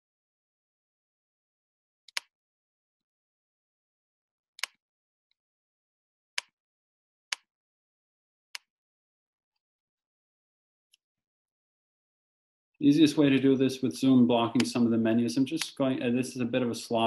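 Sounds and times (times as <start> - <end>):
computer mouse clicks: 2.1 - 2.3.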